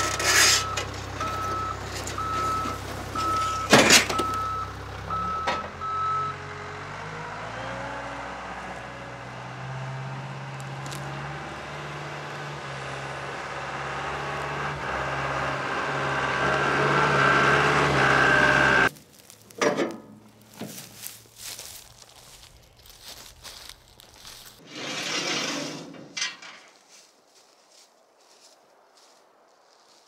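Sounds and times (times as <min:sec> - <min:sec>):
reversing beeper: 0:00.0 - 0:06.5
diesel engine running: 0:00.0 - 0:25.2.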